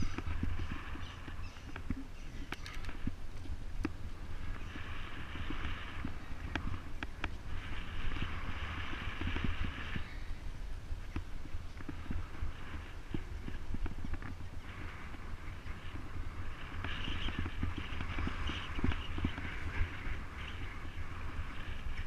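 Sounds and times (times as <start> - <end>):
bicycle rolling on tarmac: 0.0 - 22.0
wind rumbling on microphone: 0.0 - 22.0.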